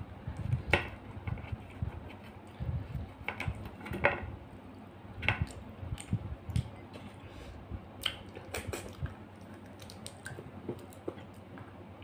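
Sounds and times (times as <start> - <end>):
chewing and wet mouth smacks: 8.0 - 11.7.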